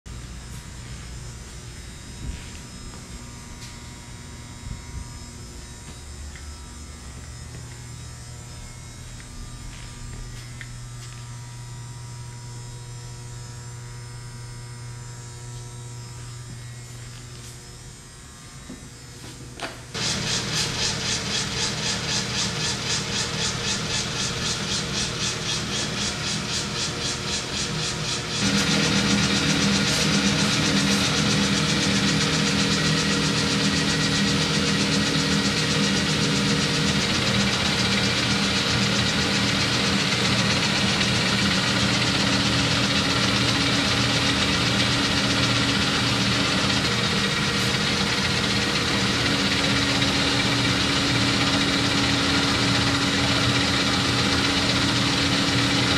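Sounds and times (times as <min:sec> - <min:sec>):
lathe motor humming: 0:00.1 - 0:55.9
lathe gearing clatter: 0:20.0 - 0:55.9.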